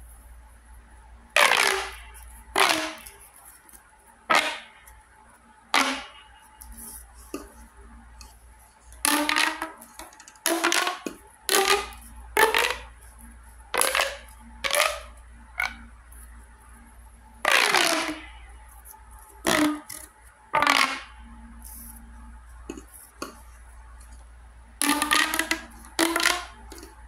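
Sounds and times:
pop tube toy popping: 1.4s - 3.3s, 4.3s - 4.9s, 5.7s - 6.3s, 9.0s - 13.0s, 13.7s - 15.8s, 17.4s - 18.4s, 19.4s - 21.8s, 24.8s - 27.0s.

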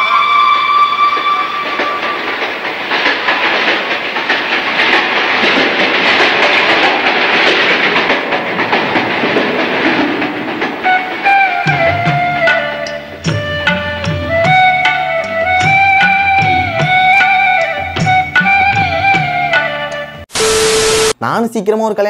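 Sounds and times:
music: 0.0s - 2.1s, 10.9s - 20.3s
rushing clatter of rapid clicks: 1.8s - 11.4s.

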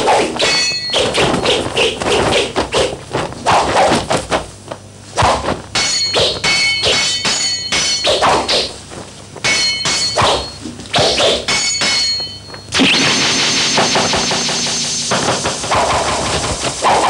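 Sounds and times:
metallic sword clashes: 0.4s - 1.8s, 5.8s - 8.8s, 9.4s - 15.0s
punches and thuds of blows: 9.4s - 17.0s.

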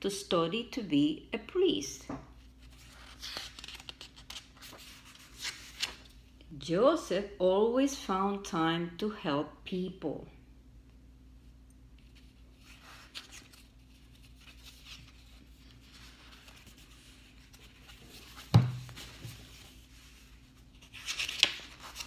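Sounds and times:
book pages rustling: 2.5s - 6.1s, 12.0s - 22.0s.

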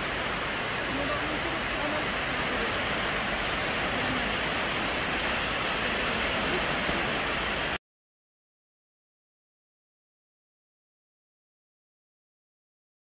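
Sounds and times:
small waves breaking on beach: 0.0s - 7.8s.

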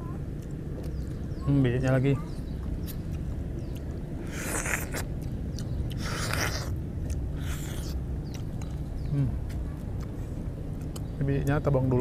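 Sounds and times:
mouth clicks: 2.2s - 10.1s
wet slurps eating orange: 4.2s - 6.8s.

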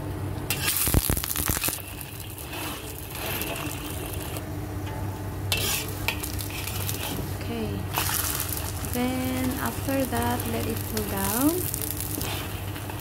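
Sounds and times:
fish patty sizzling in oil: 0.5s - 4.4s, 5.3s - 13.0s
metal spatula scraping pan: 2.3s - 4.4s, 5.5s - 7.3s.

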